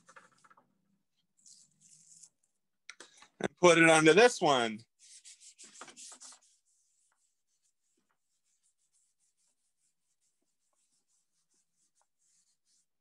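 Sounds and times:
hand rubbing paper: 0:04.9 - 0:13.0.

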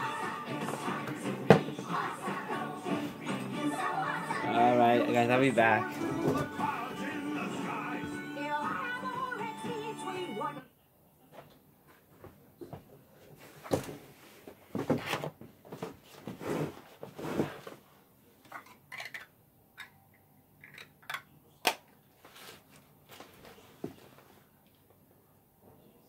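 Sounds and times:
small objects clicking and knocking: 0:18.5 - 0:20.0.

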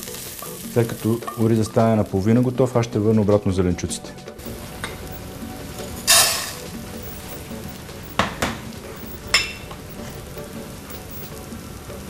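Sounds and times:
frying sizzle: 0:00.0 - 0:12.0
kitchenware clinking: 0:06.1 - 0:06.7, 0:09.3 - 0:10.2.

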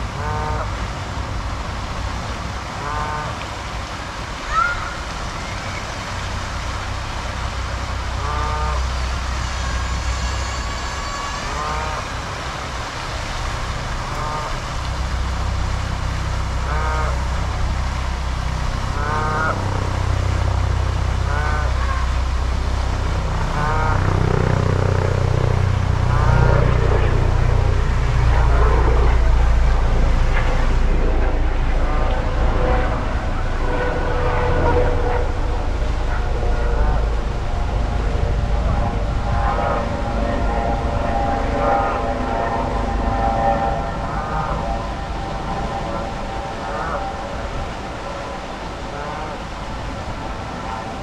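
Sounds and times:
steady low rumble: 0:00.0 - 0:51.0
geese honking: 0:08.2 - 0:08.9, 0:11.4 - 0:12.2, 0:14.0 - 0:14.6, 0:16.6 - 0:17.6, 0:18.9 - 0:19.6, 0:21.2 - 0:22.2, 0:23.5 - 0:24.1, 0:41.1 - 0:47.4.

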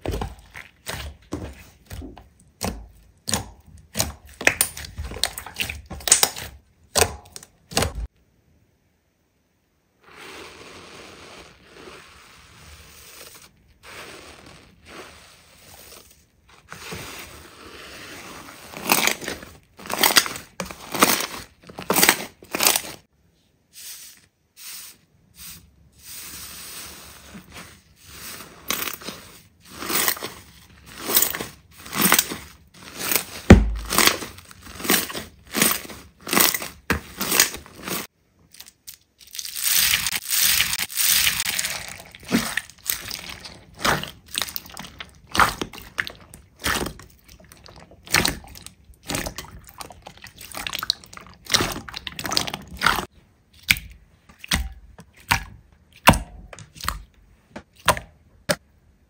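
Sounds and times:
hands squishing slime: 0:00.0 - 0:08.1, 0:26.4 - 0:58.6.

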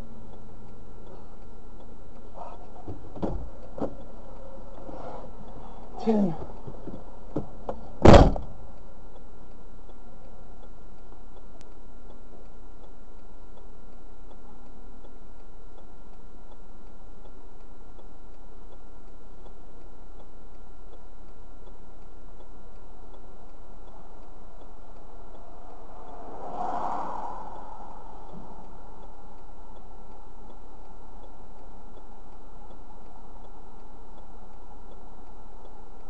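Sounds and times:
faint regular ticking: 0:00.0 - 0:36.0
low vehicle hum: 0:00.0 - 0:36.0
loud knock: 0:08.0 - 0:08.5.

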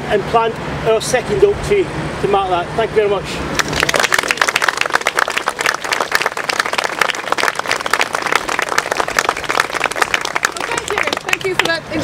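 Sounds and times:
crowd applauding: 0:03.6 - 0:11.8.

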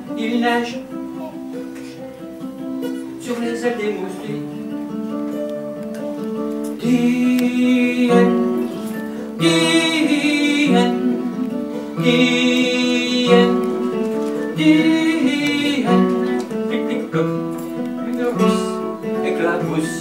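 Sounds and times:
acoustic guitar: 0:00.0 - 0:20.0
man singing: 0:06.8 - 0:20.0.

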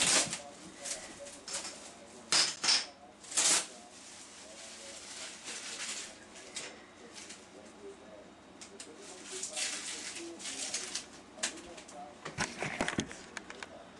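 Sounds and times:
plastic wrap crinkling: 0:03.2 - 0:06.2, 0:09.0 - 0:13.1.

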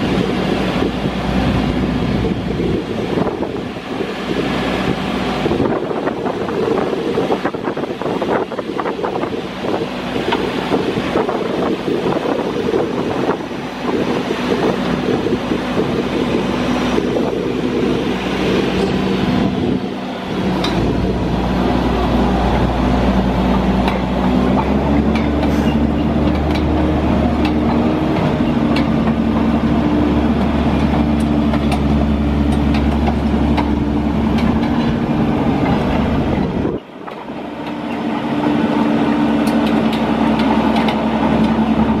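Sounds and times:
diesel engine running: 0:00.0 - 0:42.0
faint clicks from crawler tracks: 0:23.8 - 0:26.8, 0:30.4 - 0:35.0, 0:39.4 - 0:41.9.

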